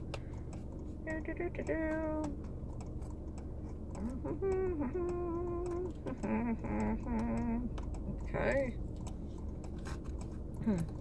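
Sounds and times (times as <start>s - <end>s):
woman humming: 3.9s - 7.8s, 10.6s - 11.0s.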